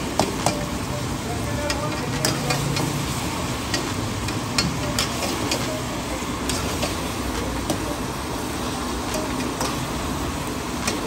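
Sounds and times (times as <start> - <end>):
meat sizzling in wok: 0.0 - 11.0
spatula clinking against wok: 1.6 - 3.0, 3.6 - 7.9.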